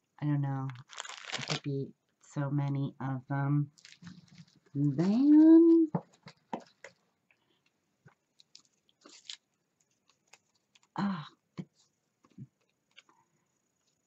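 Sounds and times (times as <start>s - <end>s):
plastic packaging handling: 0.7s - 1.7s, 3.7s - 10.9s.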